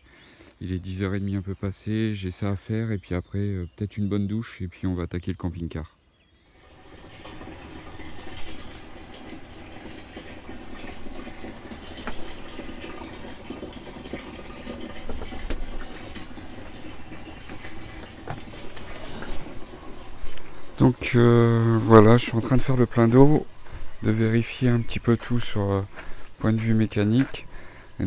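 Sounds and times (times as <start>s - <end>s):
water pouring from hose into tank: 6.6s - 28.0s.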